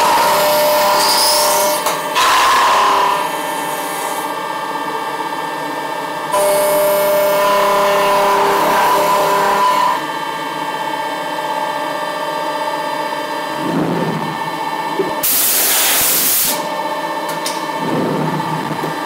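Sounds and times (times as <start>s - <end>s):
milling machine cutting plastic: 0.0s - 4.3s, 6.4s - 10.1s.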